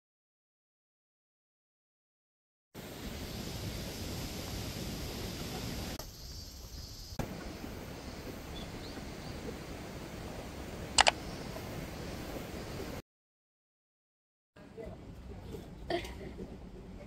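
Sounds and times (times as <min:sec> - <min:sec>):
outdoor background hiss: 0:02.8 - 0:13.0
sharp double click: 0:11.0 - 0:11.2.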